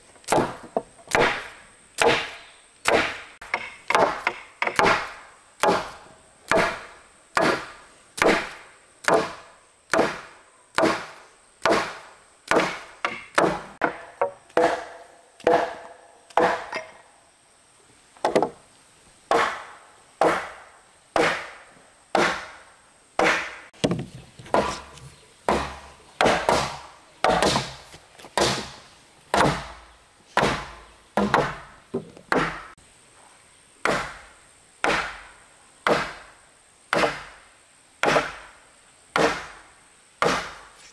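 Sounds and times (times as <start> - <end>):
hand tool chopping wood: 0.2 - 16.9, 19.3 - 20.6, 21.2 - 21.6, 22.2 - 22.6, 23.2 - 29.8, 30.4 - 32.8, 33.8 - 34.2, 34.8 - 35.2, 35.9 - 36.2, 36.9 - 37.3, 38.0 - 38.5, 39.2 - 39.6, 40.2 - 40.6.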